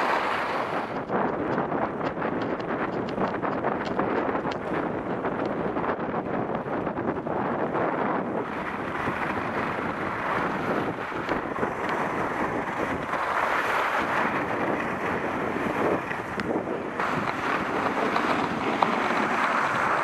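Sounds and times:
skis hissing on snow: 0.0 - 0.9, 12.7 - 14.3
wind rushing over microphone: 0.0 - 20.0.

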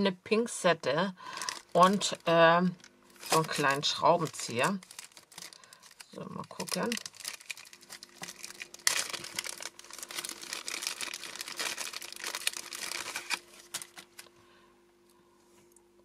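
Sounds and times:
plastic bag crinkling: 1.2 - 14.4.

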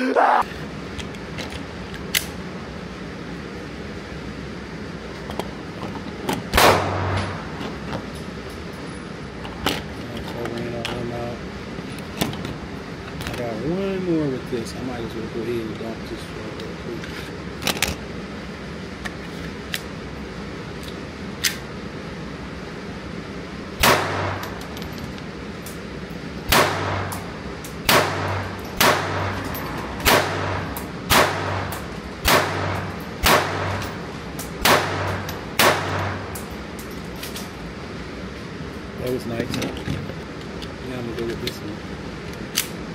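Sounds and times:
pistol shots ringing indoors: 6.5 - 7.4, 23.8 - 24.5, 26.5 - 34.0, 34.6 - 36.4.

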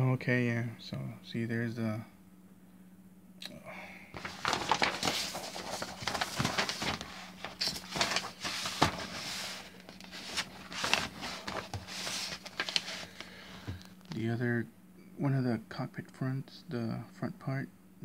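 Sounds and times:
pages turning: 4.1 - 14.2
paper rustling and crinkling: 4.1 - 14.2.

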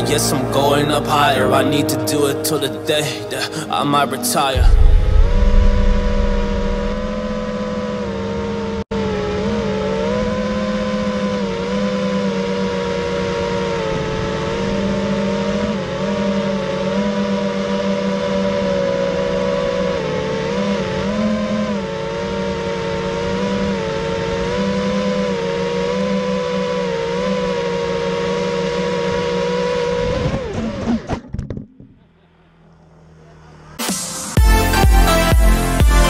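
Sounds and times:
drone propellers whining: 0.0 - 35.7.

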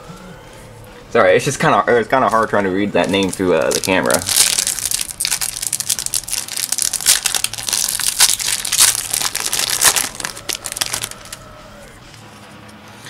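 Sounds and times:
foil wrapper crinkling and tearing: 3.0 - 11.6.

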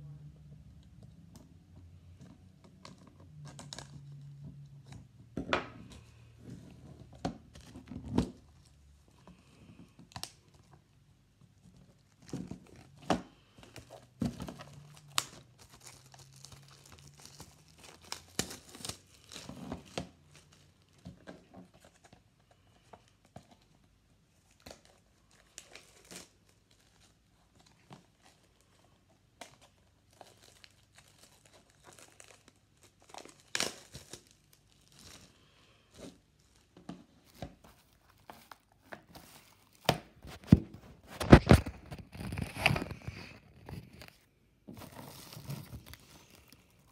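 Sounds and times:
plastic wrap crinkling: 11.6 - 23.8, 24.4 - 46.9.

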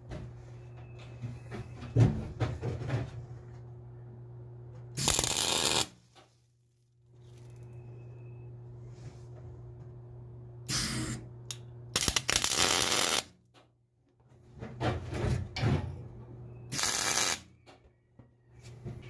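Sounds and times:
steady low hum: 0.0 - 13.3
welding arc crackling: 5.0 - 6.0, 12.0 - 13.3, 16.7 - 17.5.

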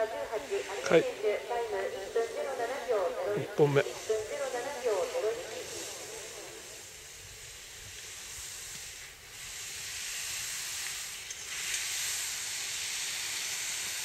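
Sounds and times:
skis carving on hard snow: 7.4 - 14.0.

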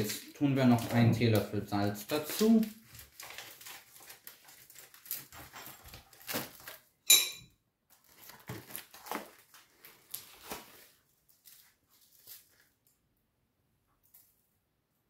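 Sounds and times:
sharp ringing clink: 7.1 - 7.5.

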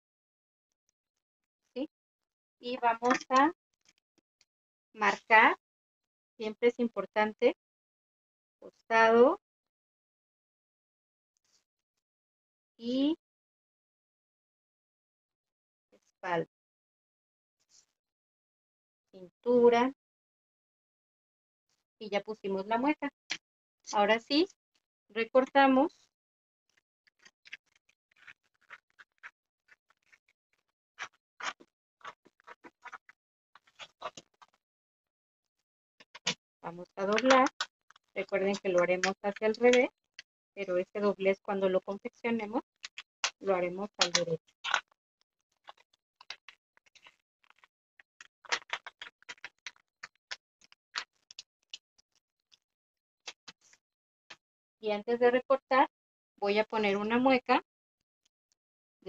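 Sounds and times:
paper crackling while folded: 42.8 - 52.1.

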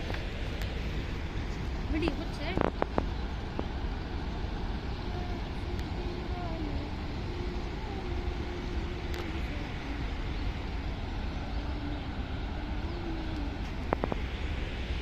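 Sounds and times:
faint boat engine hum: 0.0 - 15.0
turbulent river water rushing: 0.0 - 15.0.

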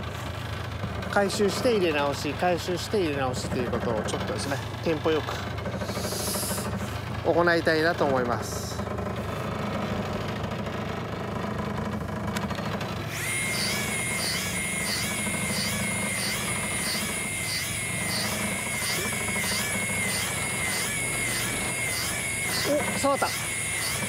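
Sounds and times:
electric fishing reel motor whining: 9.1 - 24.0.

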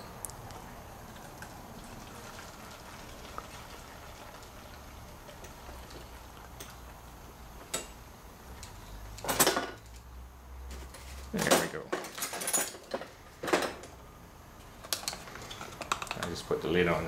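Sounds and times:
gasoline trickling into tank: 0.6 - 7.3.

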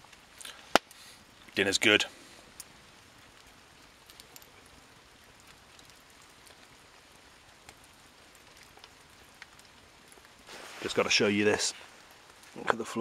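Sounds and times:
rain falling: 0.0 - 13.0
light ticks of drops: 3.4 - 4.8.

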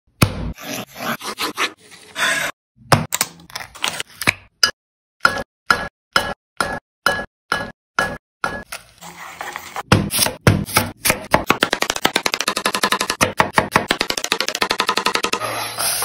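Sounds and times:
knife chopping on cutting board: 9.9 - 12.3.

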